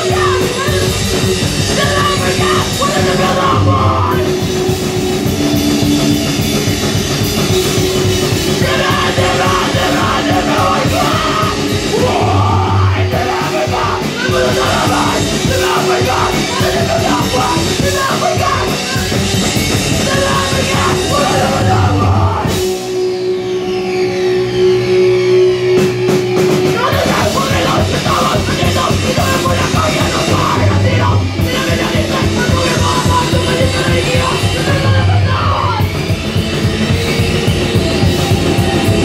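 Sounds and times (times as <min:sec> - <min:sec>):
singer yelling into microphone: 0:00.0 - 0:05.0, 0:08.4 - 0:22.6, 0:26.7 - 0:36.0
drum kit: 0:00.0 - 0:23.2, 0:25.6 - 0:39.0
electric guitar: 0:00.0 - 0:39.0.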